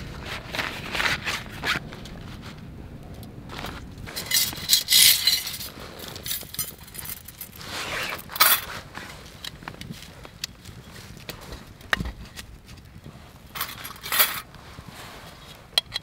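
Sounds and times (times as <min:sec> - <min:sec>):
metal parts clinking and scraping: 0:04.1 - 0:08.7, 0:13.5 - 0:14.5.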